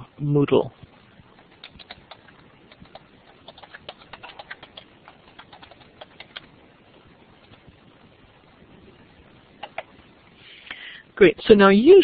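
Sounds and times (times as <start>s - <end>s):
keyboard keys clicking: 1.6s - 6.5s.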